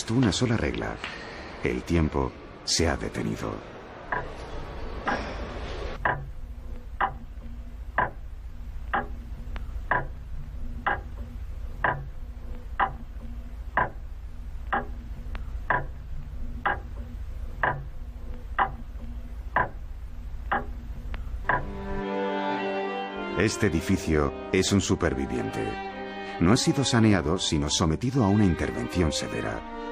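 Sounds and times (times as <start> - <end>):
low hum: 0.9 - 22.1
pendulum clock ticking: 3.0 - 5.4, 6.0 - 22.0.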